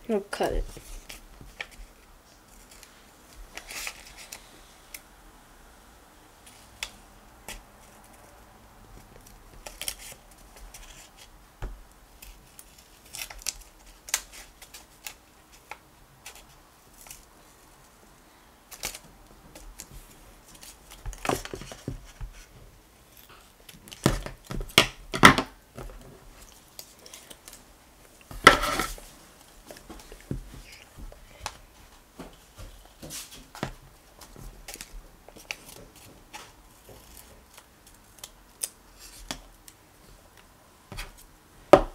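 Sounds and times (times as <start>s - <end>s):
paper rustling: 0.6s - 4.5s, 25.8s - 39.4s.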